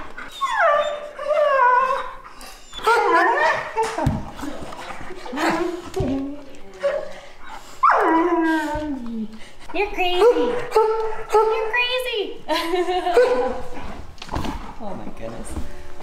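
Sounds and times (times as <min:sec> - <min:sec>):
dogs whining cries: 0:00.0 - 0:09.2.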